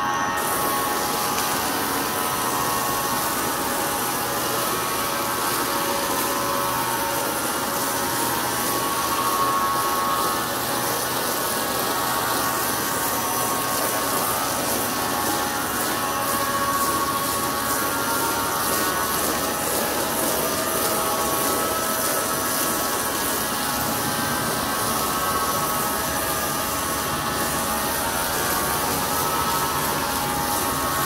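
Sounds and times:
powered sprayer hissing and whirring: 0.0s - 31.0s.

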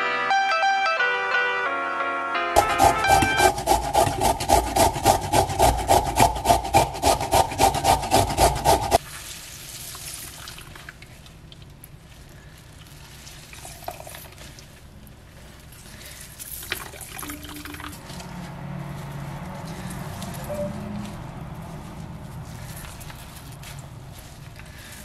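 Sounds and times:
zucchini rasping on grater: 2.6s - 9.0s.

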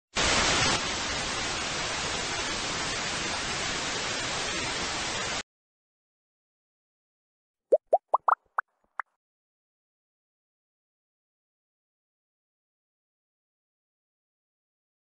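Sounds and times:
television static hiss: 0.2s - 5.4s.

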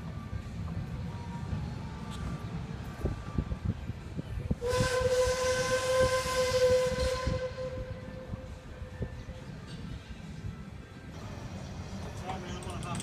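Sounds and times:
steam whistle blast: 4.6s - 8.6s.

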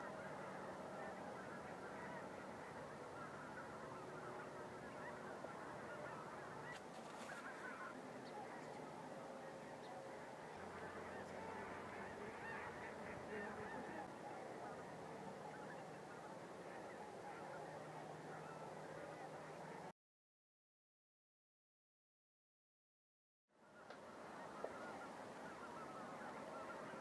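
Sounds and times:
geese honking: 0.0s - 19.9s, 23.8s - 27.0s.

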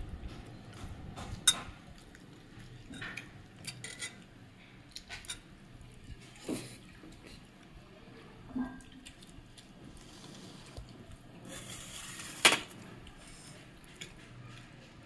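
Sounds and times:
dishes clinking on glass table: 1.2s - 1.8s.

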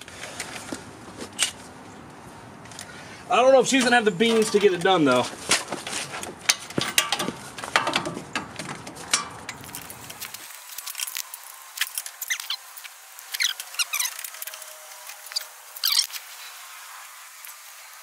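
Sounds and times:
hand tools clinking on metal: 3.8s - 5.2s, 6.4s - 9.9s
short high squeaks: 11.8s - 16.9s.

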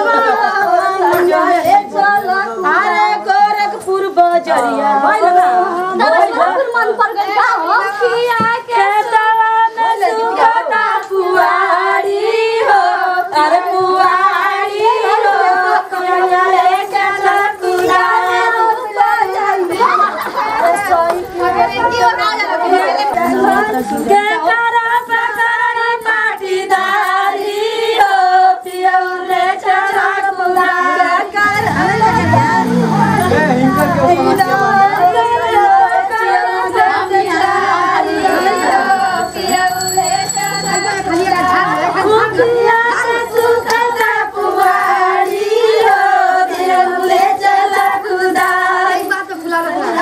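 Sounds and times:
women singing long notes: 0.0s - 50.0s.

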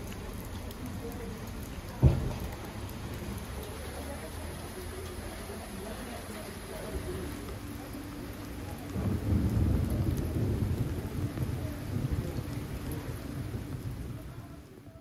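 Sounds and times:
heavy rain: 0.0s - 15.0s
thunder rumbling: 1.9s - 3.5s, 6.8s - 14.9s.

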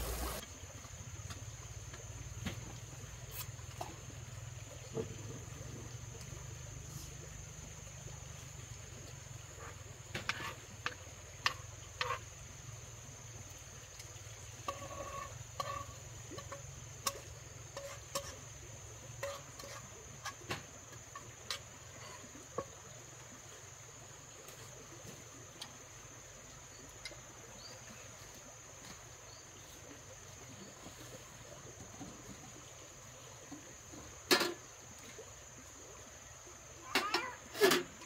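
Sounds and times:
high-pitched insect chorus: 0.0s - 0.6s, 5.3s - 24.8s.

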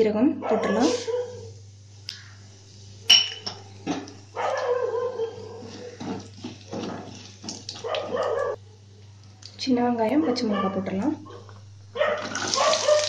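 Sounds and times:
seeds frying in oil: 12.2s - 13.0s.

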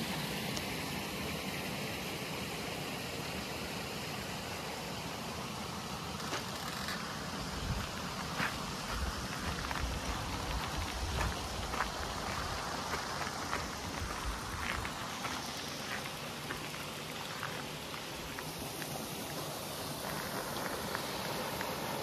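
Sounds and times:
bicycle tyres rolling on gravel: 6.1s - 21.9s.

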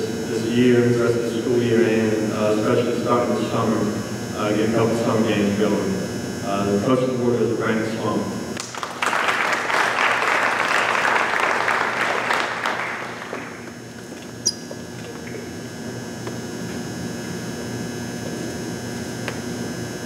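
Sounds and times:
steady hall hum: 0.0s - 20.0s
audience applauding: 8.6s - 13.7s
short sharp high squeak: 14.4s - 14.7s.

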